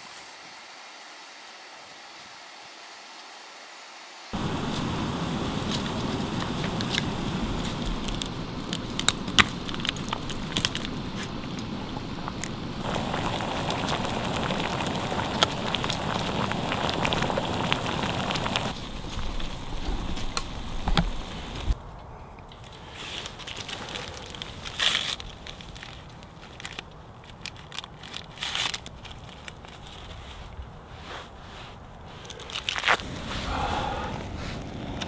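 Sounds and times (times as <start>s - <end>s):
gas stove burner hissing: 4.3s - 21.8s, 33.1s - 35.0s
pops and crackles: 4.4s - 21.8s, 22.4s - 30.2s, 32.2s - 33.2s
water boiling in pot: 4.4s - 21.8s.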